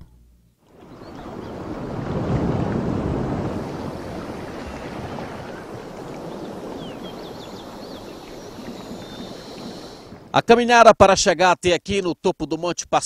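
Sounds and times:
rushing outdoor noise: 0.7 - 10.5
high chirps: 3.9 - 10.2.

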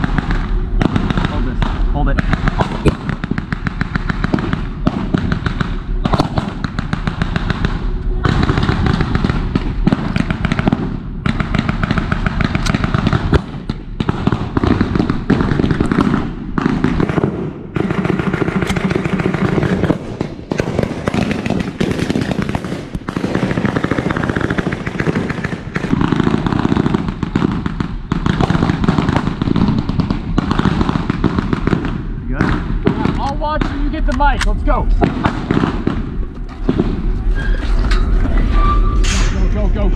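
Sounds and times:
blank gunfire crackle: 0.0 - 37.4.

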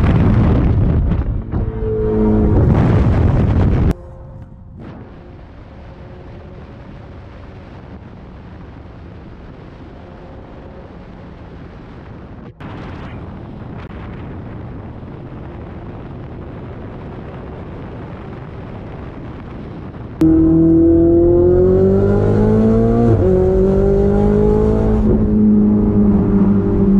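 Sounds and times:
wind and road noise: 0.0 - 26.9
faint car engine: 1.1 - 12.5, 20.2 - 26.9.

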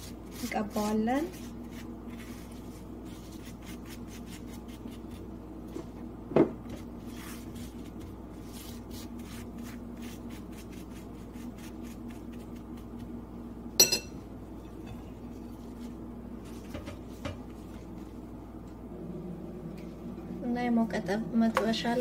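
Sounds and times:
spoon clinking against plate: 13.8 - 14.2.

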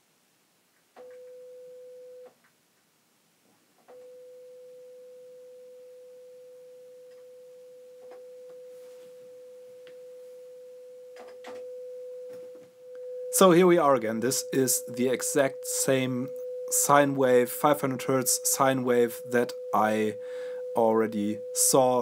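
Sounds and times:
sine-wave test tone: 1.0 - 2.4, 3.9 - 22.0.

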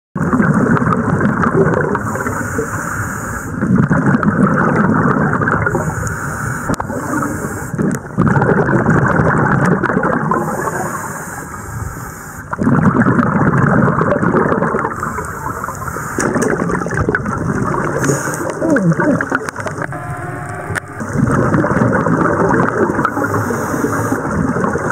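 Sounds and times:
exhaled bubbles rumbling: 0.2 - 2.7, 3.5 - 6.1, 6.7 - 11.8, 12.4 - 24.9
regulator inhale hiss: 2.0 - 3.6, 5.7 - 7.8, 10.4 - 12.5, 15.0 - 16.5, 18.0 - 18.6, 23.0 - 24.4.

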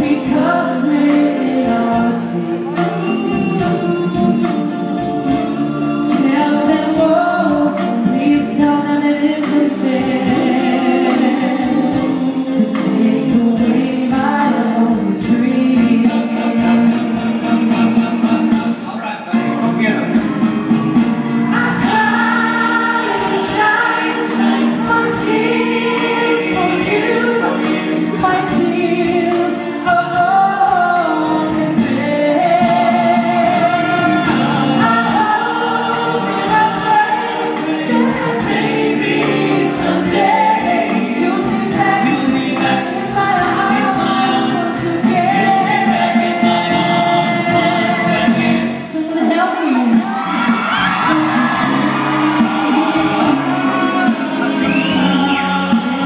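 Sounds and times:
men singing in harmony: 0.0 - 19.5, 21.0 - 56.0
live band playing: 0.0 - 56.0.

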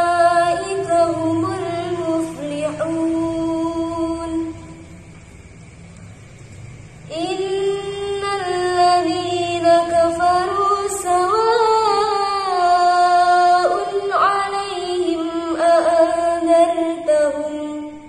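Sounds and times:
woman chanting recitation: 0.0 - 5.1, 6.8 - 18.0.

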